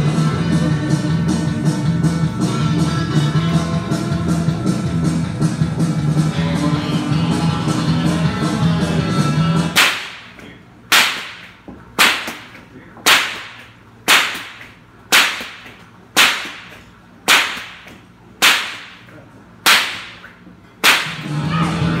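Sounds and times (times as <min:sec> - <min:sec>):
bullwhip cracking: 0:09.8 - 0:21.4.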